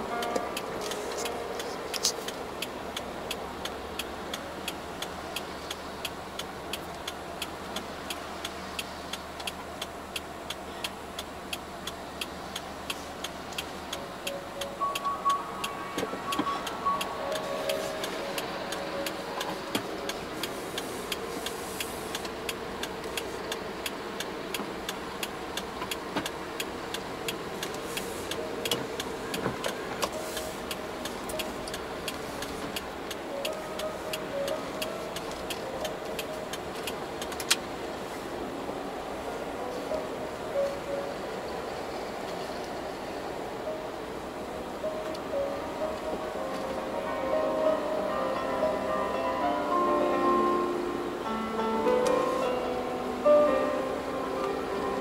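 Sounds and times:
road and engine noise: 0.0s - 55.0s
car indicator clicking: 0.1s - 38.0s.

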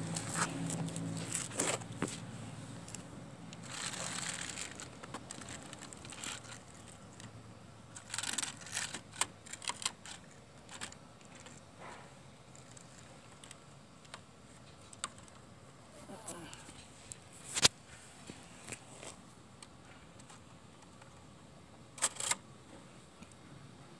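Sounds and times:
plastic wheels rolling on concrete: 0.0s - 2.2s, 2.8s - 7.4s, 8.0s - 11.6s.

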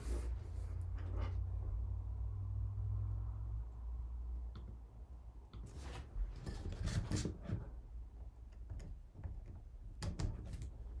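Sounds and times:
sharp clicks and knocks: 8.4s - 10.9s.

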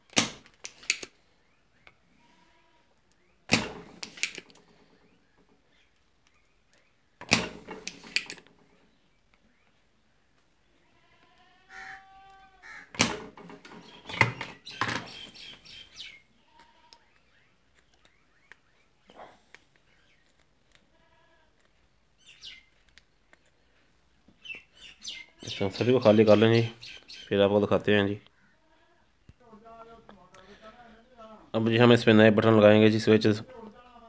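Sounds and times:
desoldering pump snapping: 3.1s - 4.7s, 7.2s - 8.6s, 12.9s - 15.2s.

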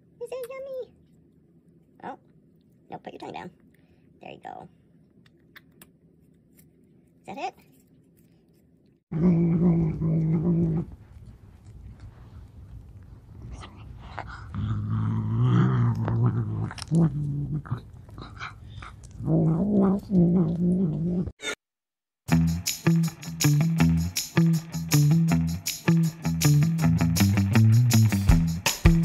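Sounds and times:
cat growling: 9.1s - 21.4s.

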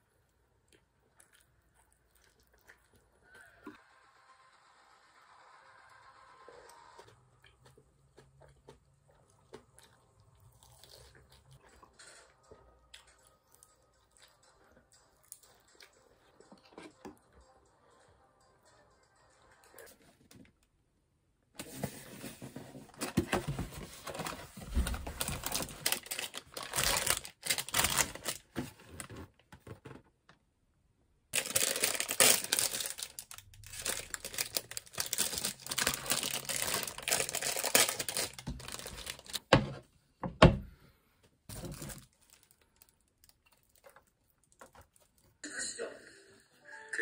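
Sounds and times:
plastic wrappers crinkling and tearing: 24.0s - 29.2s, 31.4s - 39.5s, 41.5s - 45.4s.

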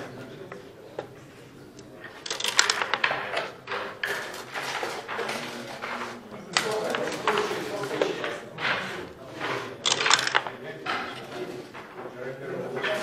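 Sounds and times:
murmur of voices: 0.0s - 13.0s
dice and checkers clacking on board: 2.0s - 12.1s.

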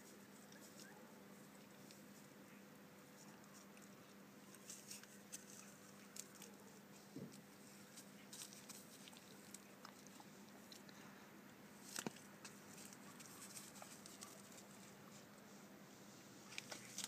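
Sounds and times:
donkey chewing dry stalks: 3.2s - 11.1s, 11.8s - 15.4s, 16.4s - 17.0s
dry stem cracking: 11.8s - 14.7s.

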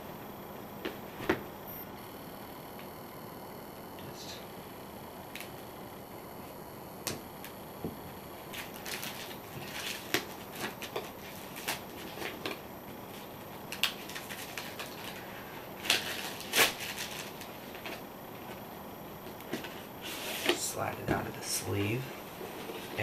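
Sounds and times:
plastic shrink-wrap crinkling: 13.7s - 18.0s.

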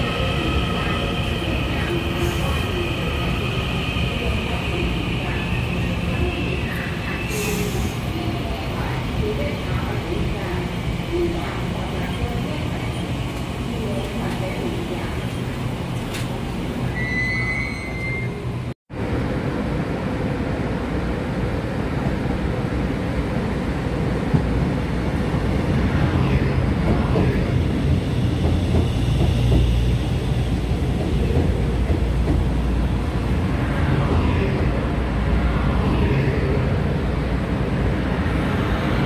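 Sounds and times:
train wheels rumbling: 26.7s - 35.4s.

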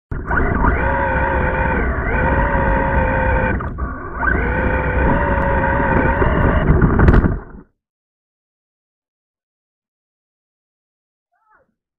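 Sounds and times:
rc car motor whining: 0.2s - 7.6s.

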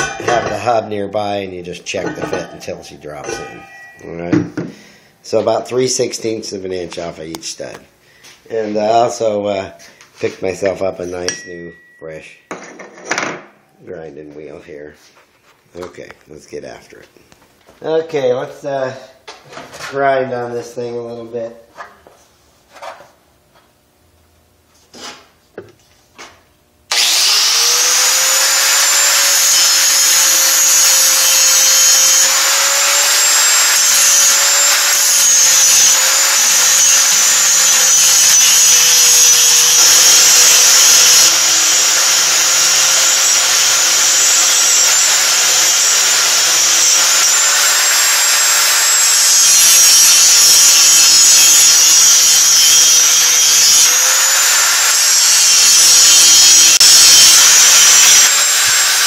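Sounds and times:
angle grinder grinding metal: 0.0s - 4.2s, 26.9s - 59.0s.

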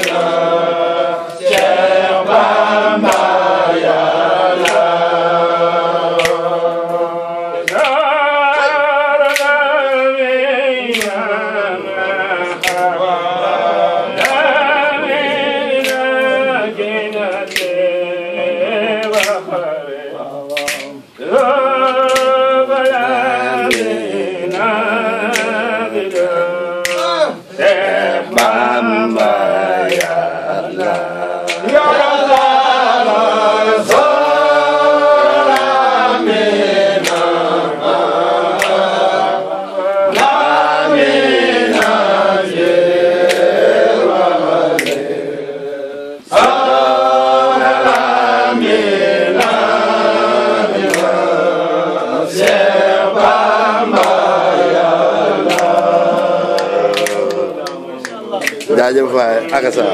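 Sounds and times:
men chanting together: 0.0s - 59.9s
sharp beat clicks: 1.2s - 5.2s, 14.1s - 14.7s, 23.6s - 39.2s, 40.1s - 43.9s.

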